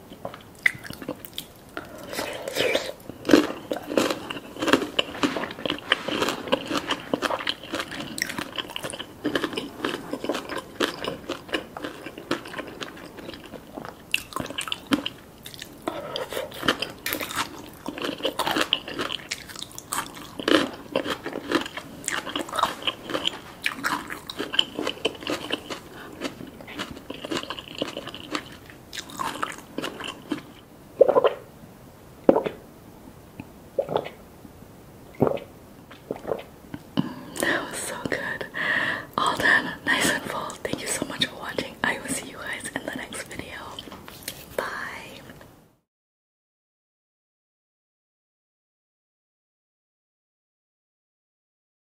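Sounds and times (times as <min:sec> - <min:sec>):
chewing and crunching food: 0:00.1 - 0:31.4.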